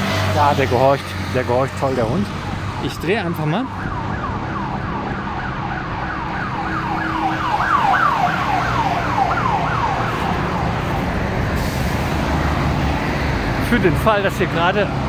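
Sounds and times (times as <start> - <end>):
street traffic: 0.0 - 15.0
emergency siren yelping: 2.0 - 11.2.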